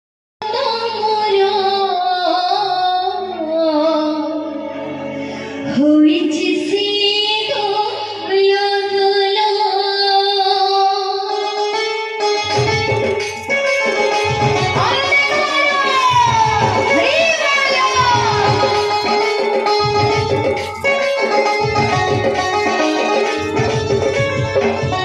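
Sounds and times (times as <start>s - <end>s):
woman singing devotional song: 0.4s - 4.6s, 5.6s - 11.4s, 14.7s - 19.4s
instrumental accompaniment: 0.4s - 25.0s.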